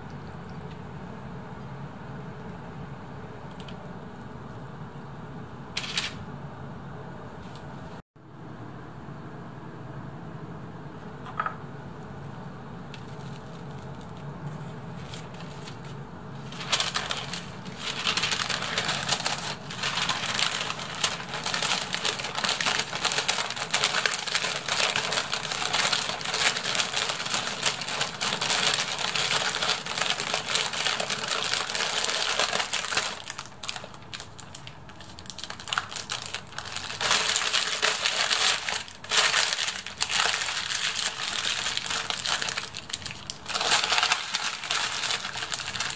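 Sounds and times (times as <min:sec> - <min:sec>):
low room hum: 0:00.0 - 0:45.9
paper crinkling and rustling: 0:05.8 - 0:06.2, 0:12.9 - 0:45.9.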